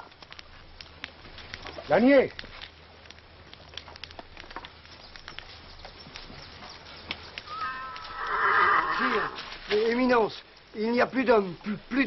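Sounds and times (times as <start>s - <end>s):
small clicks and knocks: 0.1s - 6.4s
horse whinnying: 7.5s - 9.4s.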